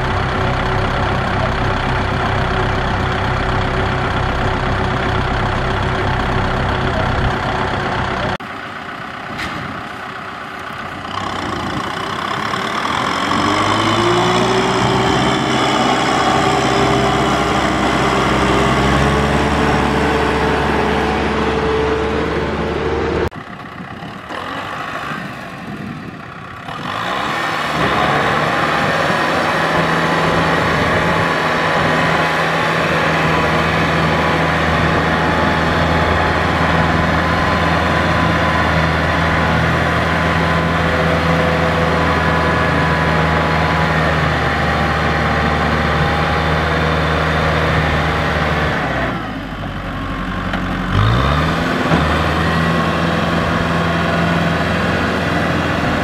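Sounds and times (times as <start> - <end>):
diesel tractor engine revving: 0.0 - 56.0.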